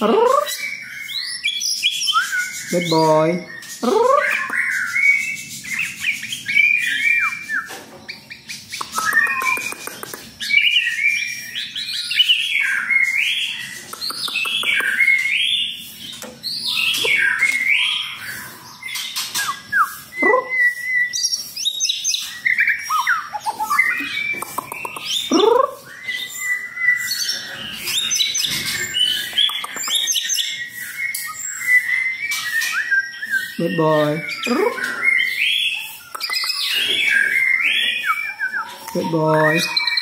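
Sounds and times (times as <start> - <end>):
bird singing whistled phrases: 0.0 - 40.0
bird fast clicking notes: 8.7 - 10.5, 13.8 - 15.2, 23.0 - 25.4, 29.2 - 30.4, 36.1 - 36.7.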